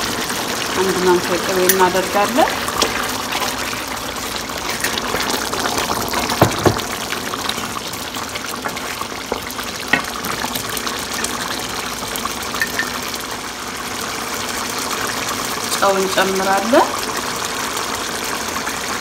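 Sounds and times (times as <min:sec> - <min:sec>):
stew bubbling in a pan: 0:00.0 - 0:19.0
wooden spoon stirring: 0:01.2 - 0:11.4
spoon knocking against pan: 0:08.6 - 0:10.2, 0:12.6 - 0:13.0.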